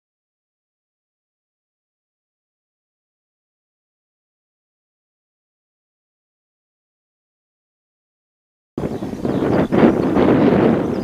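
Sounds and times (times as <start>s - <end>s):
wind buffeting microphone: 8.8s - 11.0s.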